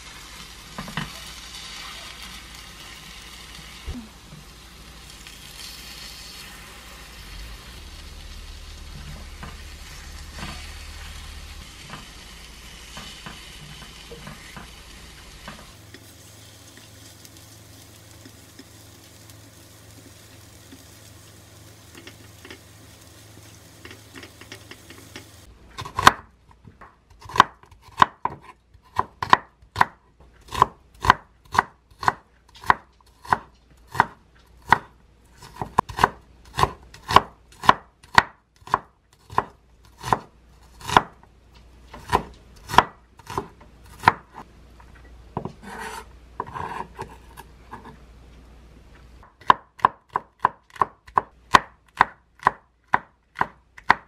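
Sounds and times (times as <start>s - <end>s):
frying sizzle: 0.0s - 25.5s
knife chopping on wooden board: 25.8s - 41.2s, 42.0s - 44.4s, 45.4s - 48.0s, 49.4s - 54.0s.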